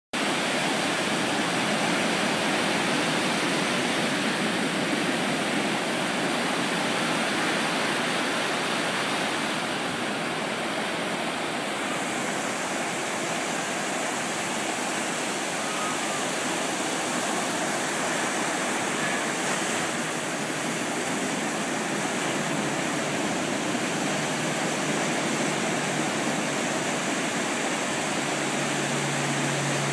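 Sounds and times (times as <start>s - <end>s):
ocean waves breaking: 0.2s - 29.9s.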